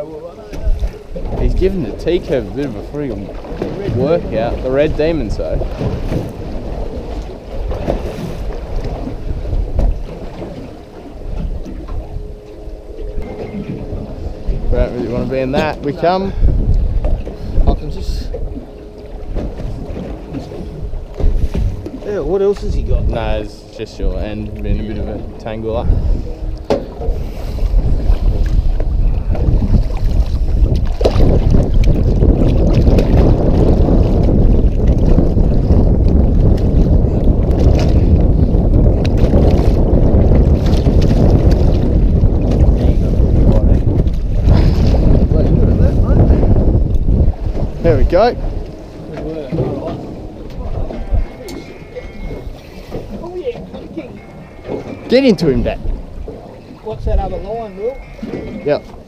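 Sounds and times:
choppy water against boat hull: 0.0s - 59.0s
wind buffeting microphone: 0.0s - 59.0s.

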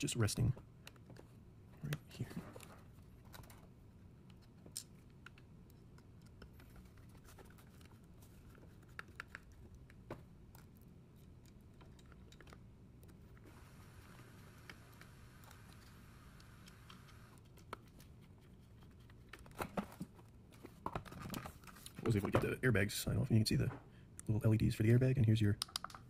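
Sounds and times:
screwdriver clicks on plastic parts: 25.6s - 26.0s.

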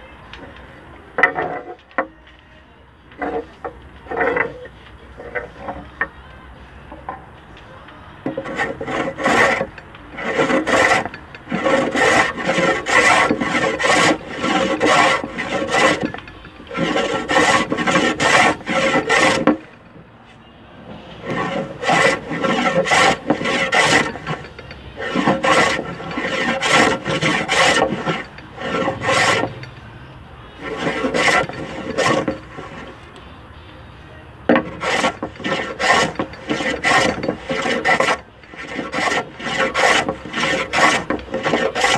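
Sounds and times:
hand plane shaving wood: 3.2s - 5.9s, 8.3s - 19.7s, 21.1s - 29.8s, 30.6s - 33.0s, 34.5s - 41.9s.

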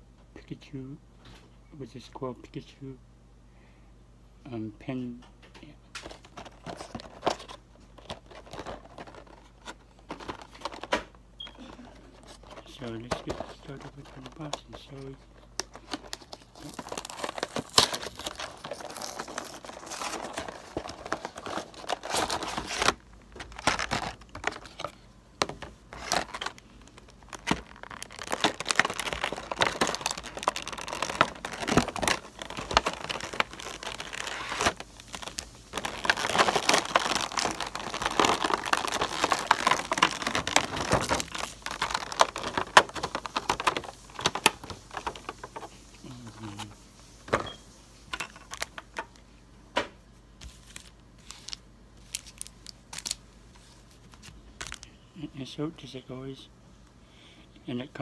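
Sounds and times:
packaging crinkling and tearing: 6.0s - 11.0s, 11.6s - 46.8s, 48.2s - 49.2s, 50.4s - 54.9s.

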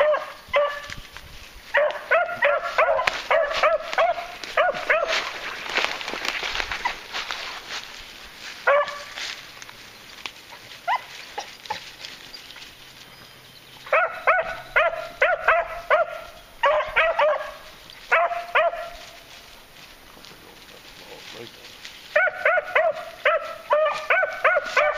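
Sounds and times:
dogs barking: 0.0s - 0.9s, 1.7s - 5.9s, 8.6s - 9.2s, 13.8s - 19.2s, 22.1s - 24.9s.

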